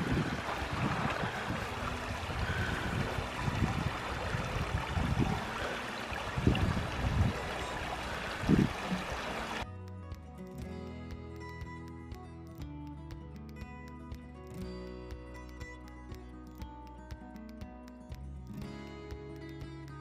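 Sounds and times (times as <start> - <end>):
water splashing and running: 0.0 - 9.6
wind rumbling on microphone: 0.0 - 9.6.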